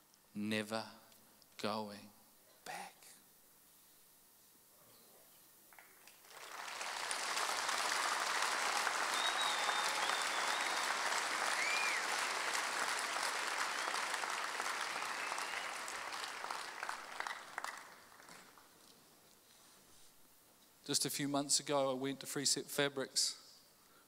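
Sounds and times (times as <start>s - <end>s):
audience applauding: 6.1s - 18.7s.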